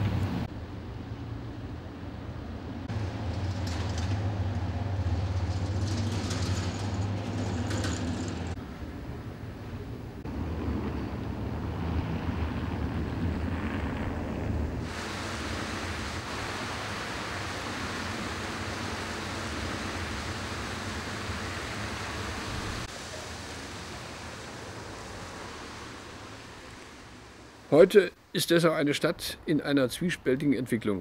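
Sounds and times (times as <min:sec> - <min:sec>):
fountain jets splashing: 0:14.8 - 0:27.9.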